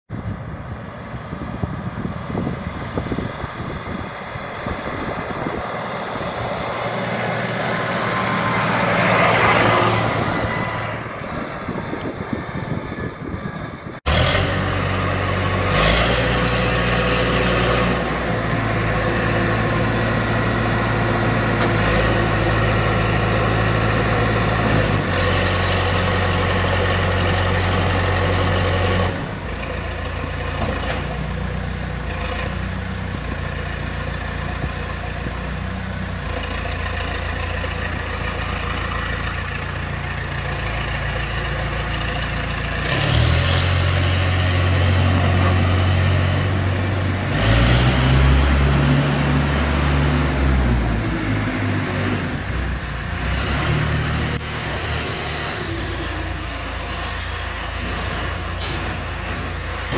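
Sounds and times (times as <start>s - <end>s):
wind on microphone: 0.1s - 6.8s, 10.4s - 14.0s
diesel engine running: 0.1s - 59.9s
vehicle passing: 2.4s - 26.0s.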